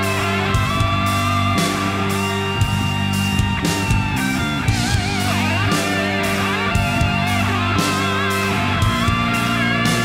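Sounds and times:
rock music with guitar: 0.0 - 10.0.

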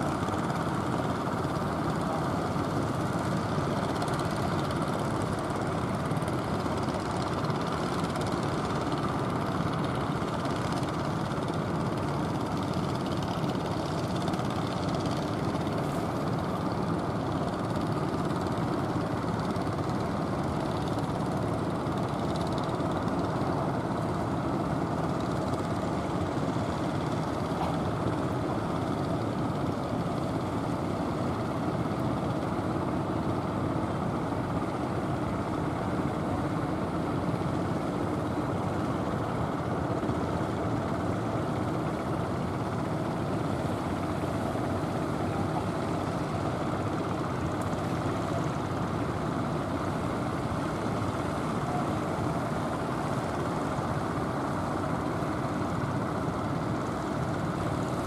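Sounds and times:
boat engines droning: 0.0 - 58.0.

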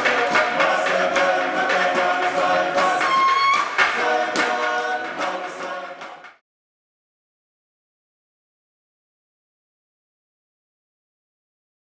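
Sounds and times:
group chanting in unison: 0.0 - 6.4
sharp percussive knocks: 0.0 - 6.4.

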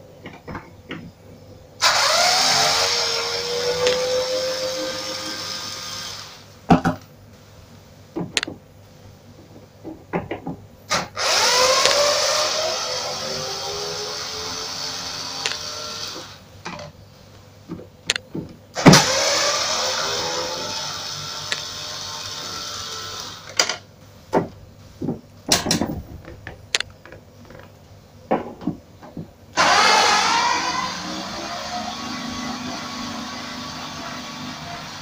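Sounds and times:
clicks and knocks: 8.2 - 8.6, 23.6 - 29.4.

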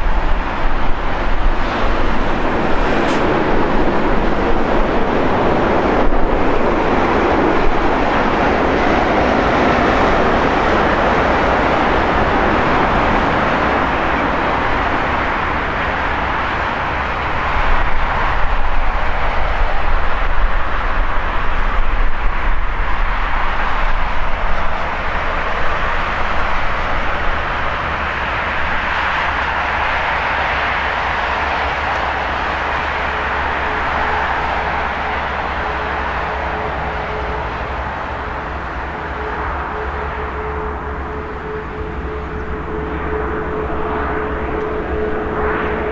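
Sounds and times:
faint high engine whine: 0.0 - 45.9
jet engines rushing: 0.0 - 45.9.

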